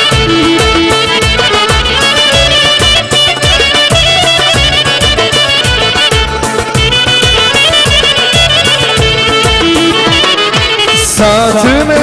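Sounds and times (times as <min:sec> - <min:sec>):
high wavering melody: 0:00.0 - 0:11.1
keyboard accompaniment: 0:00.0 - 0:12.0
steady drum beat: 0:00.0 - 0:12.0.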